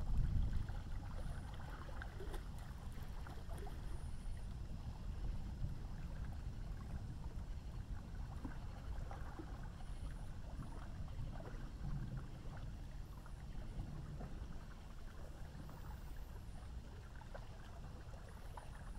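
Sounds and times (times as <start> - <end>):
low river rumble: 0.0 - 18.9
water ticks and splashes: 0.0 - 18.9.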